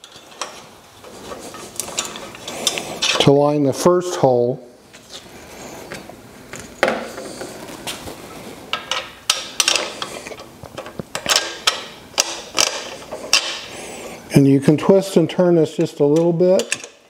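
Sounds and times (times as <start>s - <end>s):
metal clicks and knocks: 10.7s - 13.6s, 16.1s - 17.0s.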